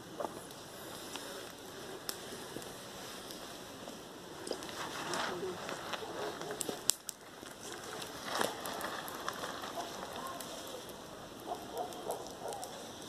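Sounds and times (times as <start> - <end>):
fire crackling and hissing: 0.0 - 13.0
sharp pops: 6.0 - 10.4.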